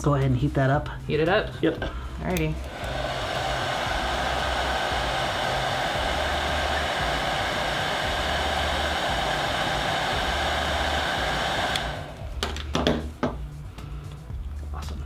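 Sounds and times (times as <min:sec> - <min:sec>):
heat gun blowing air: 0:02.5 - 0:13.0.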